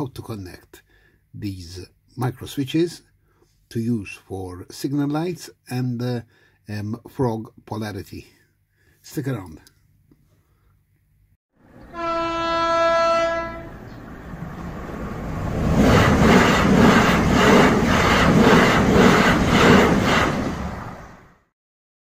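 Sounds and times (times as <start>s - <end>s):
train passing: 11.6s - 21.5s
train horn: 11.8s - 13.8s.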